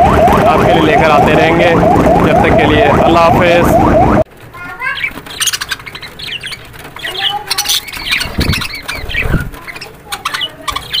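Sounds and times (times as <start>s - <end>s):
budgerigars chirping: 4.9s - 11.0s.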